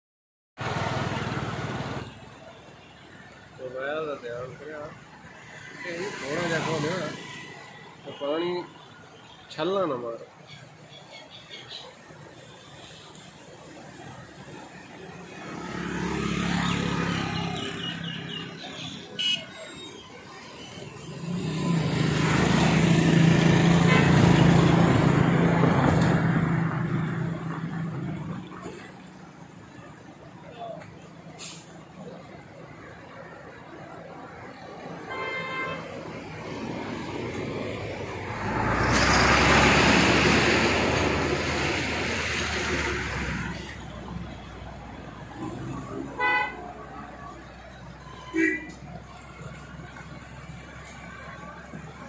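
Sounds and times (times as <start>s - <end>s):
vehicle passing by: 15.4s - 18.3s, 21.0s - 28.6s, 36.2s - 46.2s
vehicle driving past: 36.5s - 43.8s.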